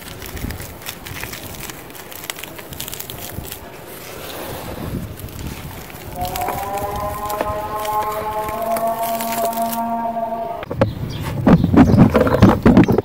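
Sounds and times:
crumbs sifting into plastic tub: 0.0s - 9.8s
hands crumbling dry cement lumps: 0.0s - 9.8s.

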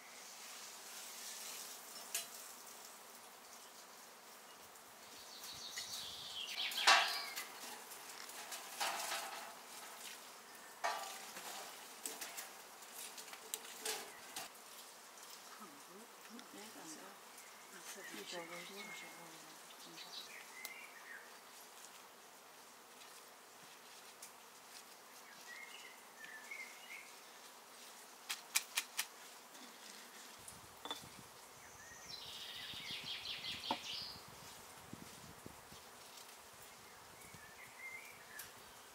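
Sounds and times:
birds chirping: 5.1s - 7.8s, 15.4s - 21.5s, 30.8s - 34.2s
tongs knocking and scraping logs: 6.7s - 10.0s, 10.8s - 14.5s.

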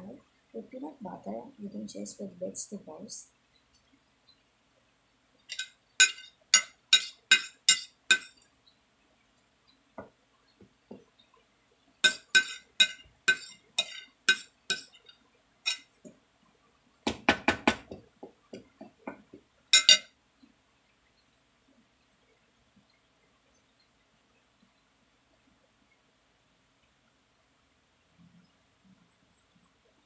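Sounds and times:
metal spoon clinking on ceramic plate: 5.5s - 8.3s, 12.0s - 15.1s, 15.7s - 15.9s, 19.8s - 20.1s.

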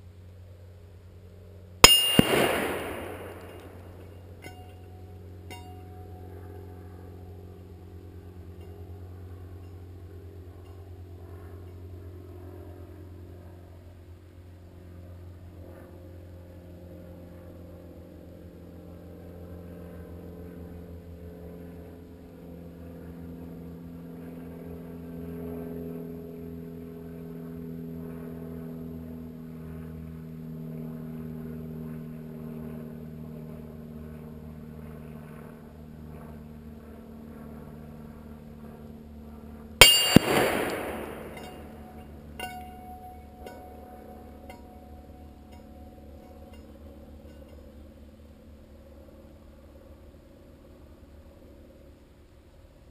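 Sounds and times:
bullet hitting steel plate: 1.8s - 4.6s, 39.8s - 41.8s.

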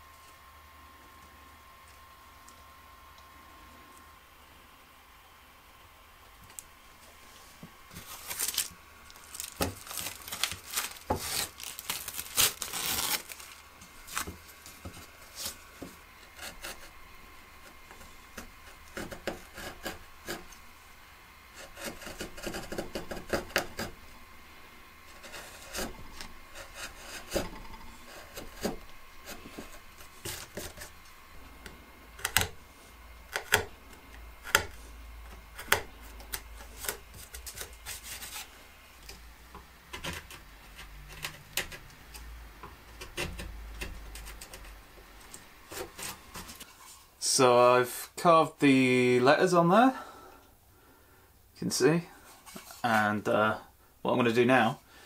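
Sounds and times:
chisel cutting wood: 16.2s - 17.0s, 17.6s - 20.6s, 21.5s - 24.0s, 25.0s - 31.0s, 32.2s - 32.6s, 33.3s - 33.7s, 34.4s - 37.8s, 42.8s - 44.8s.

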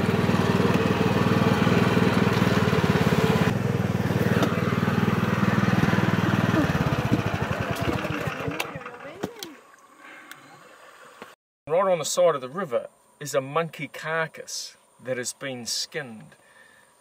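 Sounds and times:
boat motor running: 0.0s - 11.3s.

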